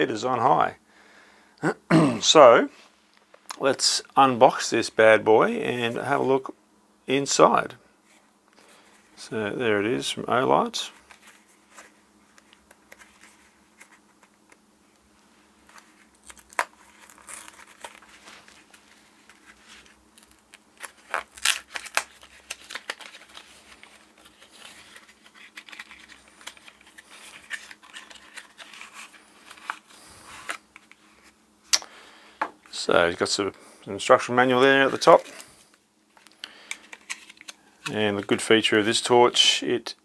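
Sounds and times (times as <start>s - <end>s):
packaging crinkling and rustling: 15.6s - 31.4s, 34.5s - 38.4s.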